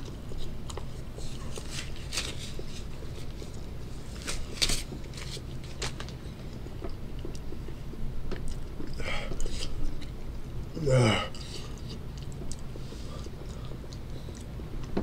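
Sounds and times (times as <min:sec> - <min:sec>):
rubber gloves rustling and snapping: 0:00.7 - 0:06.2.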